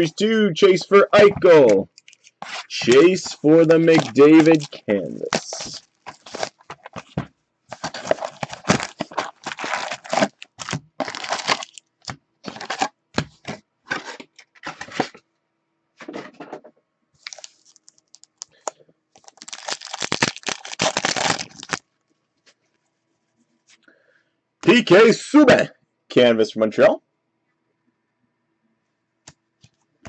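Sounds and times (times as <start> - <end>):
foil packs crinkling and tearing: 1.2 - 12.9, 17.2 - 21.8.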